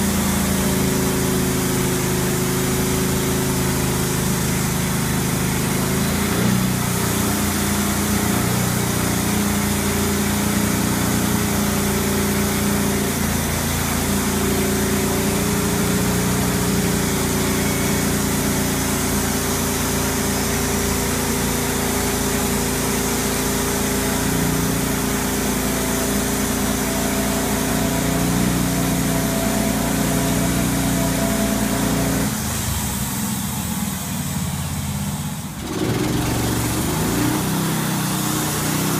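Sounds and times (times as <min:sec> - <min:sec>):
sawmill engine sawing log: 0:00.0 - 0:38.9.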